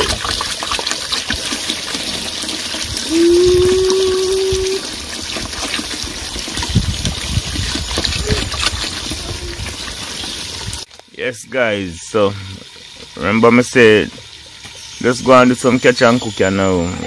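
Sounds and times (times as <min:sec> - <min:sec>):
water pouring into a pot: 0:00.0 - 0:10.9
loud steady tone: 0:03.1 - 0:04.8.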